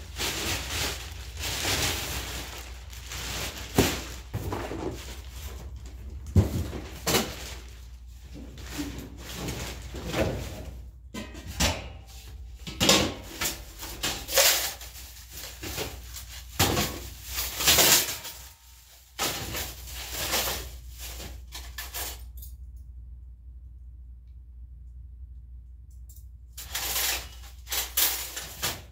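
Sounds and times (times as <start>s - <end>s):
plastic bag rustling: 0.0s - 10.9s, 13.2s - 22.0s, 26.6s - 28.9s
low steady hum: 0.0s - 28.9s.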